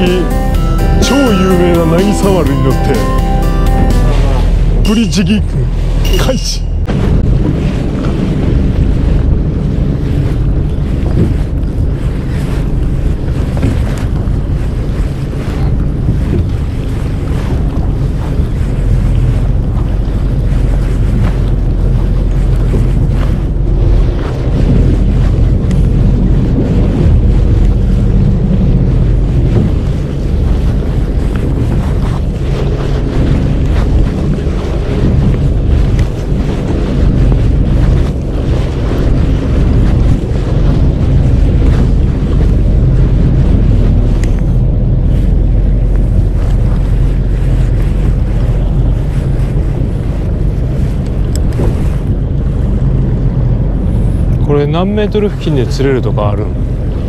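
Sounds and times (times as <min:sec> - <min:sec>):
boat engine droning: 0:00.0 - 0:57.0
wind buffeting microphone: 0:04.2 - 0:57.0.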